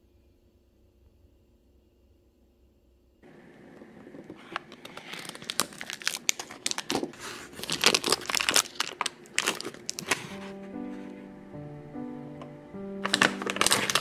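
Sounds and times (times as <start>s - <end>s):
food wrappers crinkling and tearing: 3.7s - 11.0s, 13.0s - 14.0s.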